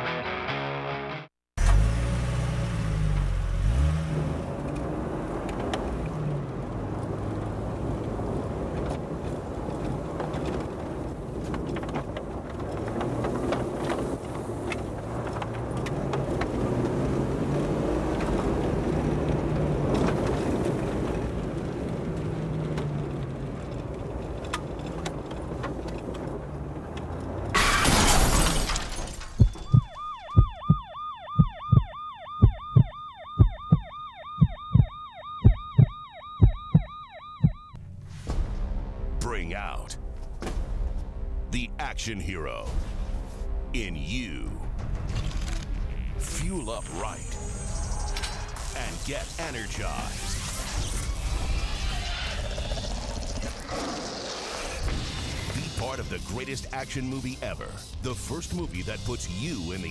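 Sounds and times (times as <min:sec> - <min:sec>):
car road noise: 0:01.6 - 0:59.9
emergency vehicle siren wailing: 0:29.2 - 0:37.8.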